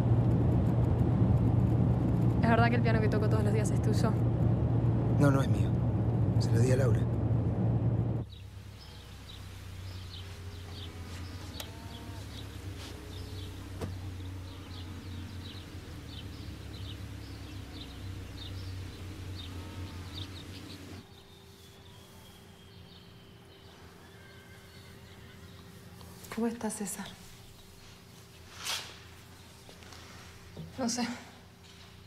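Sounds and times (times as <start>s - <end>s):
steady low hum: 0.0s - 24.1s
low curved bird calls: 8.2s - 26.2s
birds chirping: 8.2s - 28.5s.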